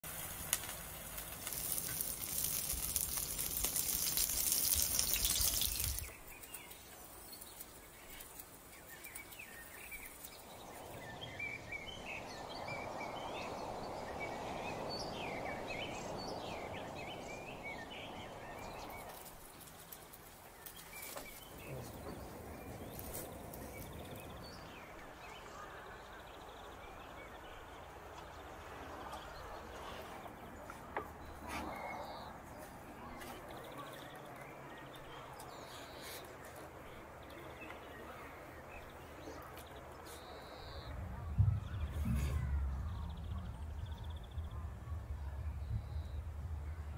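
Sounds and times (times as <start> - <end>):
batter sizzling in frying pan: 0.0 - 6.4
birds chirping: 0.0 - 46.9
steady rushing noise: 9.3 - 19.8.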